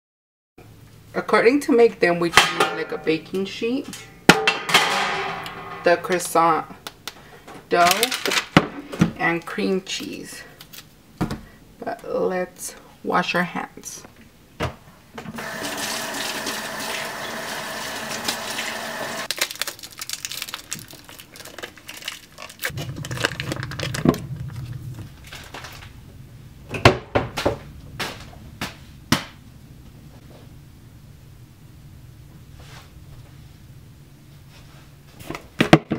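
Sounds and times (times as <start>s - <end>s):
foil wrapper crinkling: 7.8s - 8.6s, 19.3s - 26.0s
faucet running over hands: 15.4s - 19.3s.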